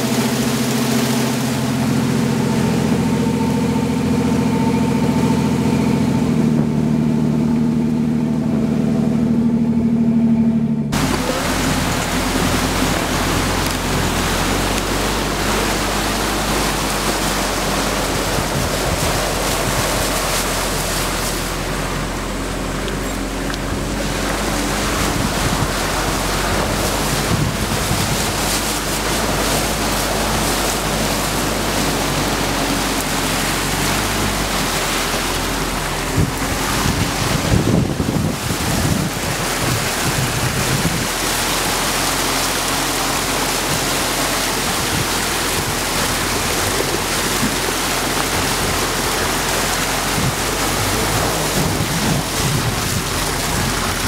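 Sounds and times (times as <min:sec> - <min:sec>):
buggy engine running: 0:00.0 - 0:54.0
water splashing against hull: 0:00.0 - 0:54.0
wind noise on microphone: 0:10.9 - 0:54.0.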